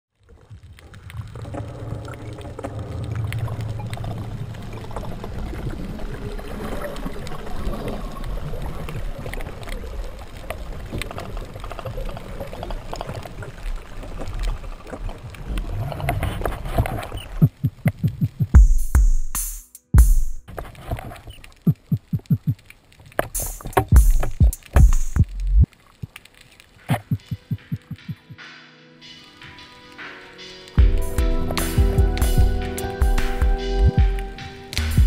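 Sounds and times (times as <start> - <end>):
muffled rushing water underwater: 0.1 - 18.6, 20.5 - 28.3
small underwater clicks: 0.2 - 18.6, 20.5 - 28.0.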